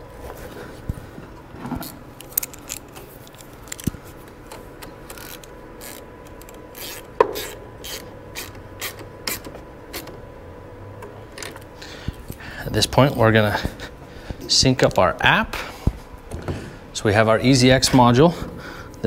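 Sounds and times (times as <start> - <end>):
ratchet wrench clicking: 5.1 - 10.1.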